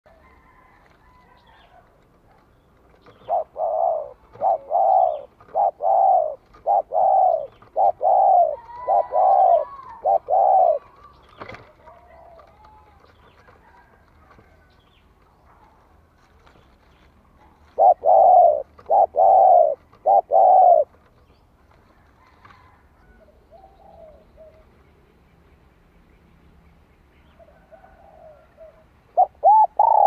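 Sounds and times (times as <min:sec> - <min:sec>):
dove cooing: 0:03.1 - 0:14.6, 0:17.4 - 0:21.0, 0:22.2 - 0:24.8, 0:27.4 - 0:30.0.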